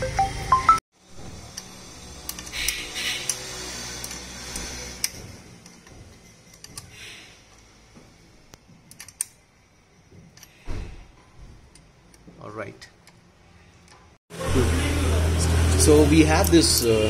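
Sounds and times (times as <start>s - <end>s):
spanner metal clicks: 1.5s - 3.4s, 4.0s - 7.7s, 8.9s - 9.4s.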